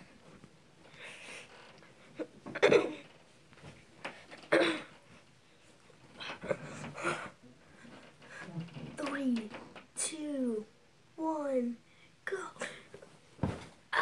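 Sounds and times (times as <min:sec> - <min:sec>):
bumps and rustling: 0:01.6 - 0:10.0, 0:13.0 - 0:13.9.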